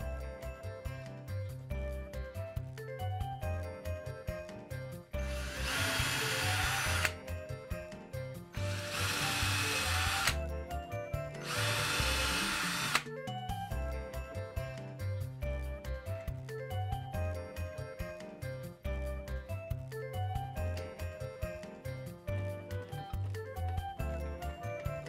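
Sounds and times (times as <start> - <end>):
background music: 0.0 - 25.0
cordless drill boring: 5.2 - 7.2, 8.6 - 10.4, 11.3 - 13.1.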